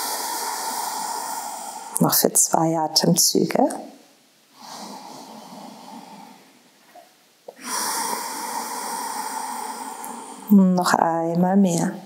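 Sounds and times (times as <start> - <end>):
woman breathing deeply: 0.0 - 2.0, 4.6 - 6.6, 7.5 - 10.5.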